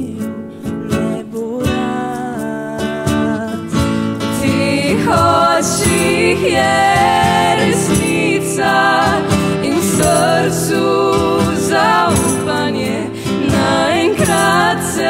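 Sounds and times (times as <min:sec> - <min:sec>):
person singing: 0:00.0 - 0:15.0
instrumental accompaniment: 0:03.1 - 0:15.0.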